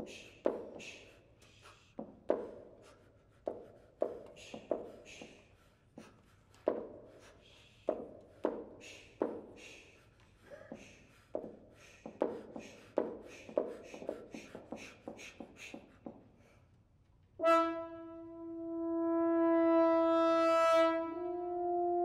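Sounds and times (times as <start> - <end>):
sustained horn note: 17.4 - 22.0.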